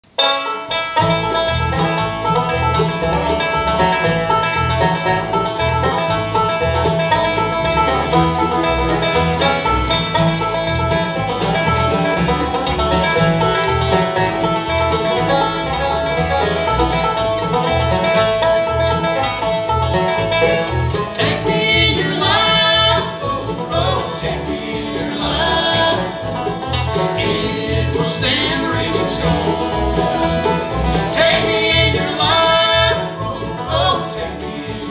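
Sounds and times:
bluegrass band playing: 0.0 - 34.9
harmony vocals: 21.0 - 34.9.

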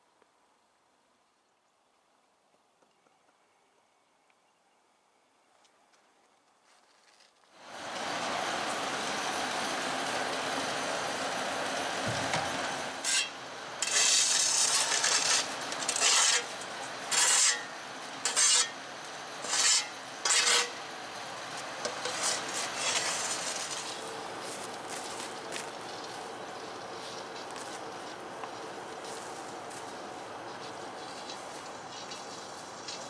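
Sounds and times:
shovel scraping snow: 13.0 - 18.8, 19.4 - 20.8, 21.9 - 25.7.

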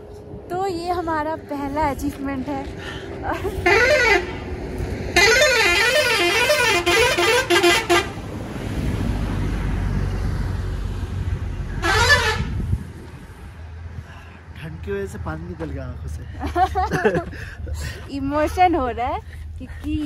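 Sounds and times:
heavy engine rumbling: 0.0 - 20.0
truck horn warbling: 3.6 - 4.5, 5.1 - 8.2, 11.7 - 12.7.

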